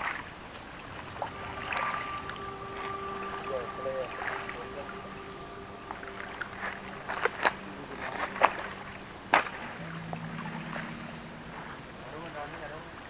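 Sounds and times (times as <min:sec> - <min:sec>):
low motor hum: 0:00.7 - 0:13.0.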